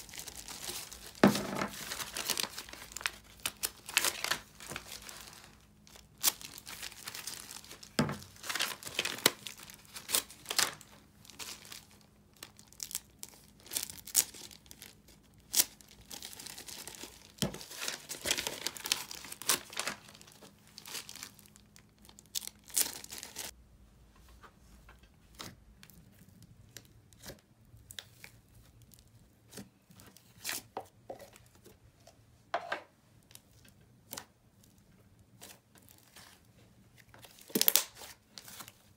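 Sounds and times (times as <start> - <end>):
plastic crinkling and rustling: 0.0 - 23.5, 33.2 - 38.9.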